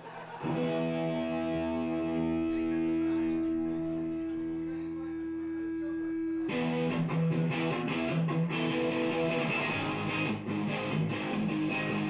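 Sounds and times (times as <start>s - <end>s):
bass guitar: 0.4s - 4.7s, 5.3s - 12.0s
electric guitar strumming chords: 0.4s - 12.0s
drums: 6.6s - 12.0s.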